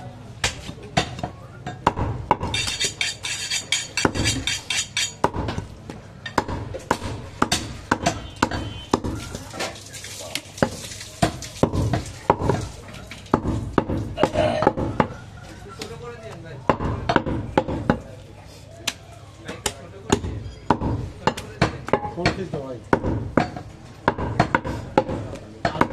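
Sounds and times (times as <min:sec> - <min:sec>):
cleaver chopping on wooden block: 0:00.4 - 0:03.3, 0:03.9 - 0:05.7, 0:06.3 - 0:09.2, 0:13.3 - 0:15.2, 0:16.7 - 0:18.0, 0:18.9 - 0:25.9.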